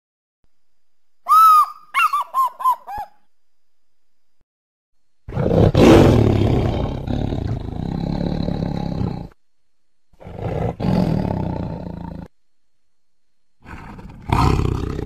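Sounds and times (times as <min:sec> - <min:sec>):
recorded tiger roar: 0:05.3 - 0:09.4, 0:10.2 - 0:12.3, 0:13.6 - 0:15.0.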